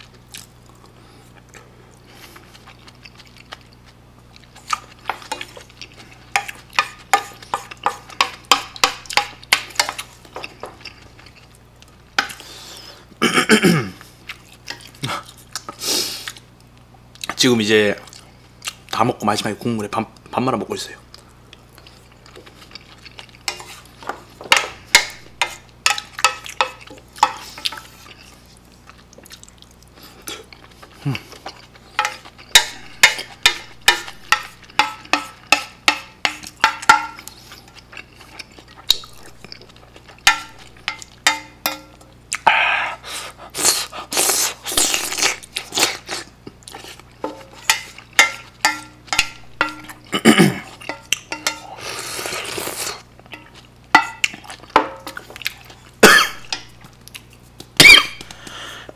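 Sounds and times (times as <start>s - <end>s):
slurping broth: 51.7s - 53.0s.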